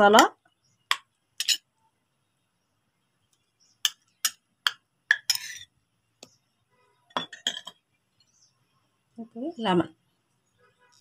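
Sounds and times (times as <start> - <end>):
spoon scraping a bowl: 1.4 - 1.7, 5.1 - 5.8.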